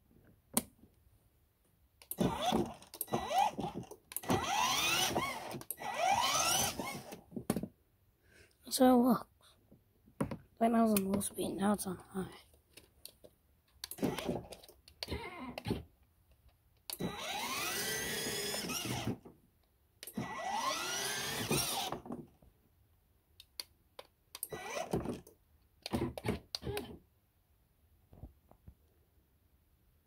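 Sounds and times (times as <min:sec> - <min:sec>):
electric motors whining: 0:02.2 - 0:07.2, 0:17.0 - 0:19.2, 0:20.1 - 0:22.0.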